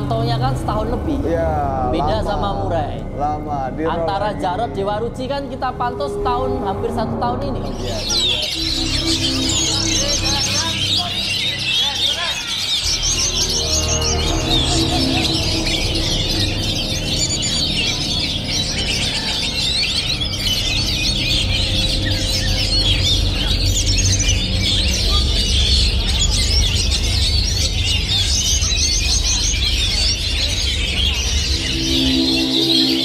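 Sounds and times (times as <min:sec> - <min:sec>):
steady low rumble: 0:00.0 - 0:33.0
birds singing whistles and chirps: 0:02.0 - 0:33.0.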